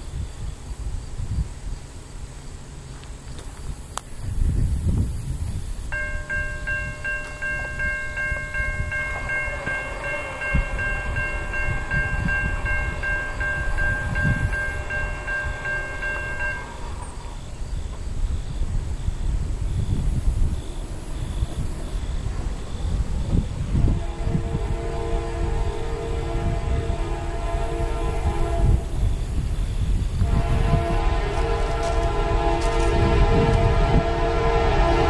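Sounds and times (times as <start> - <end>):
wind rumble on microphone: 0.0 - 2.1, 3.3 - 35.0
distant locomotive air horn: 5.9 - 17.6, 23.6 - 29.4, 30.2 - 35.0.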